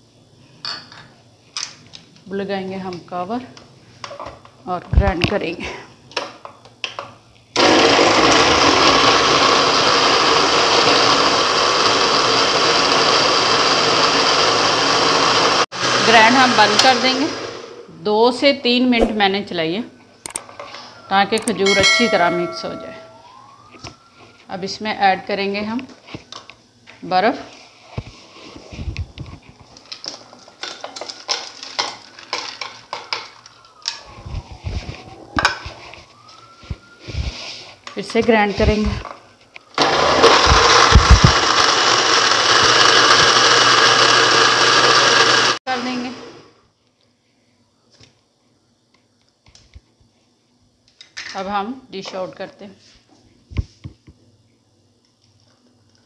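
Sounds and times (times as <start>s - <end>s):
electric blender grinding: 7.6s - 17.9s, 39.8s - 46.5s.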